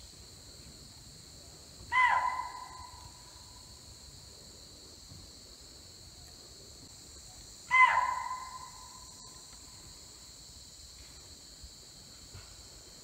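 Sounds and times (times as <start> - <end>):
forest insects droning: 0.0 - 13.0
shrill animal alarm call: 1.9 - 3.0, 7.7 - 9.0.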